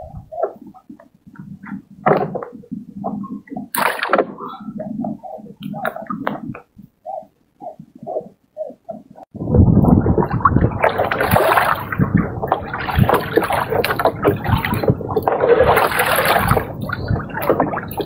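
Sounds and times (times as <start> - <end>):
fish flopping and splashing: 10.8 - 18.0.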